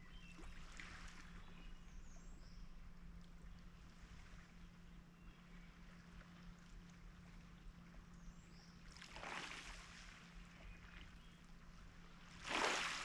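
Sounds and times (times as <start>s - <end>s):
waves washing over pebbles: 12.4s - 13.0s.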